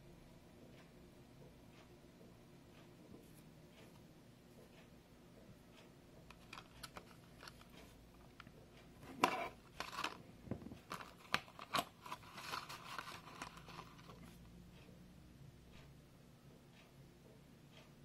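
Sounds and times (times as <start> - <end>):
plastic blister packaging crinkling: 9.1 - 14.3.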